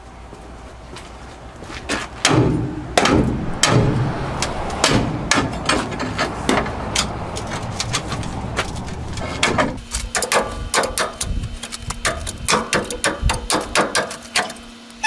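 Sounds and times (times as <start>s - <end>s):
hammer striking steel: 2.2s - 7.5s.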